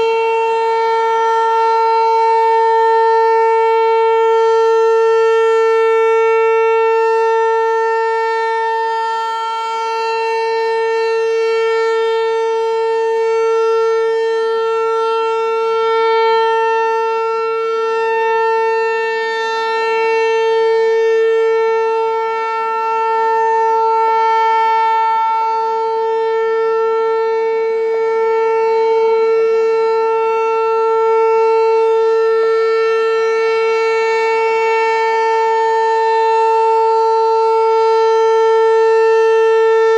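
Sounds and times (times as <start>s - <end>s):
rotating warning siren: 0.0s - 39.9s.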